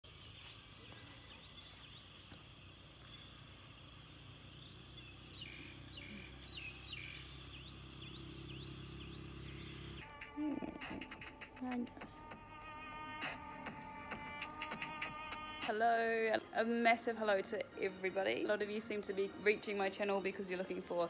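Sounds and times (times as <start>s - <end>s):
birds chirping: 0.0s - 10.0s
high-pitched insect drone: 0.0s - 21.0s.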